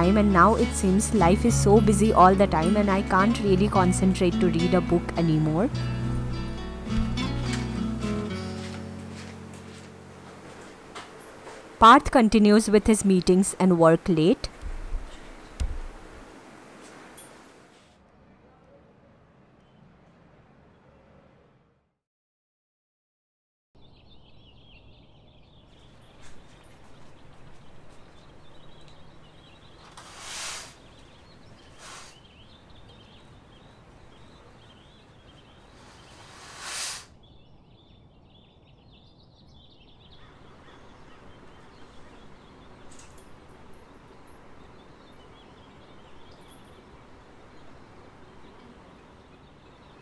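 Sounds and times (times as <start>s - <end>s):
small birds chirping: 8.5s - 16.2s, 23.8s - 50.0s
short rushing swells: 35.8s - 37.1s.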